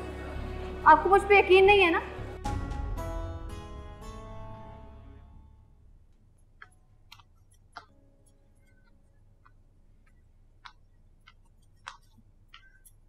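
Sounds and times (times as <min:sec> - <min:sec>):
faint footsteps on stairs: 0:06.0 - 0:13.0.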